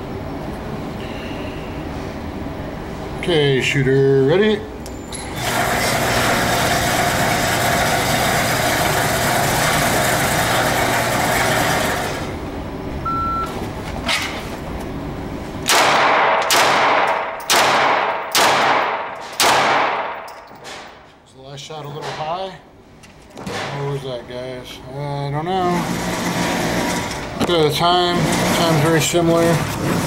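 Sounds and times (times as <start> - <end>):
mechanical hum: 0.0 - 30.0
shot timer beep: 13.0 - 13.5
pistol shots echoing: 15.7 - 20.3.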